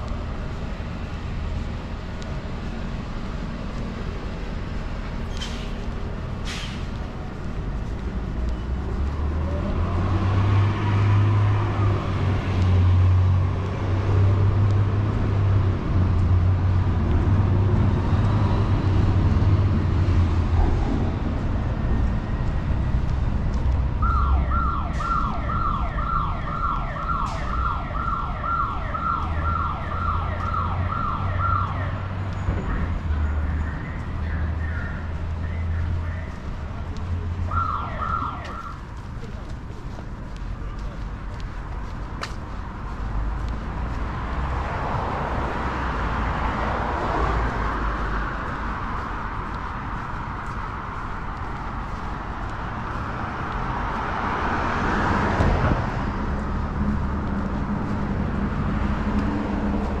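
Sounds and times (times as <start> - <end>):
heavy vehicle passing: 0.0 - 26.1, 29.2 - 60.0
street traffic rumbling: 0.0 - 60.0
emergency vehicle siren: 21.9 - 39.3.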